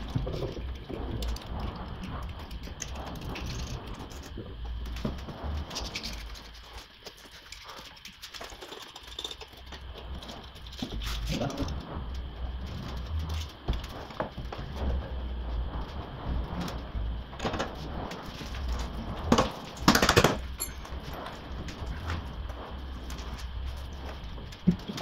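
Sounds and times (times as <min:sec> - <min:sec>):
low workshop hum: 0:00.0 - 0:25.0
tools and parts knocking: 0:19.3 - 0:20.8.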